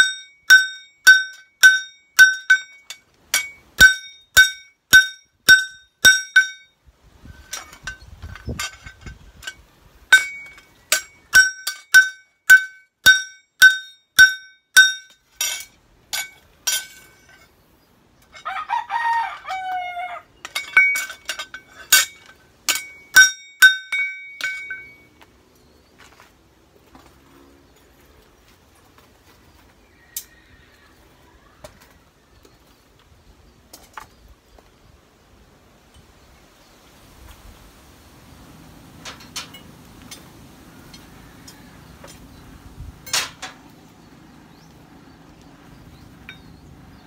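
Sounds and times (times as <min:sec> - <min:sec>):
hammer striking blade on anvil: 0:00.0 - 0:06.7, 0:10.1 - 0:17.2, 0:20.6 - 0:25.0.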